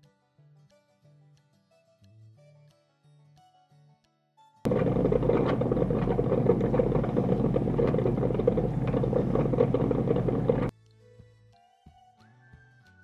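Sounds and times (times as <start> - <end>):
drip coffee maker brewing: 4.7 - 10.7.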